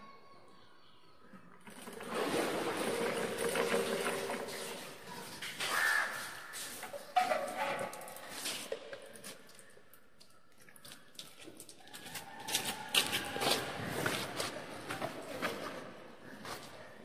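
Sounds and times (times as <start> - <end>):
metal bucket clanking: 1.6 - 9.0.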